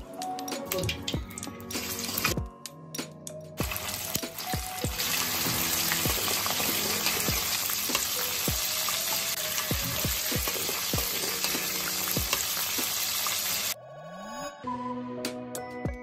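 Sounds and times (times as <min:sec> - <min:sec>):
chicken deep-frying in oil: 0:00.7 - 0:02.4, 0:03.6 - 0:13.8.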